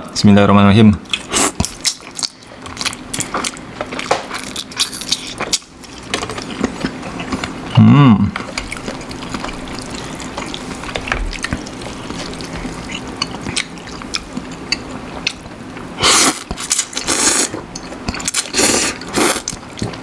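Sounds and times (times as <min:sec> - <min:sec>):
chewing sounds: 0:01.0 - 0:20.0
person slurping noodles: 0:16.0 - 0:17.6, 0:18.4 - 0:19.5.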